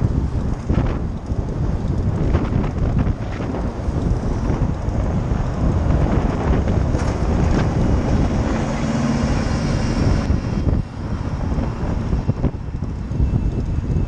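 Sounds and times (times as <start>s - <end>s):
wind buffeting microphone: 0.0s - 14.0s
vehicle passing with tyre hiss: 7.8s - 12.1s.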